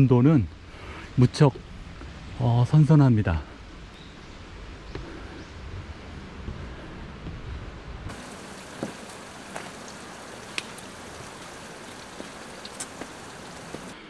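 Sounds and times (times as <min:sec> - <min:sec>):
water drops ticking: 0:08.1 - 0:13.9
steady hiss of water: 0:08.1 - 0:14.0.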